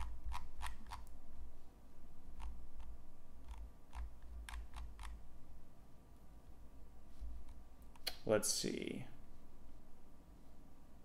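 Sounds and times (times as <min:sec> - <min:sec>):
computer mouse clicks: 0:00.0 - 0:01.1, 0:02.4 - 0:05.2
low steady hum: 0:00.0 - 0:11.0.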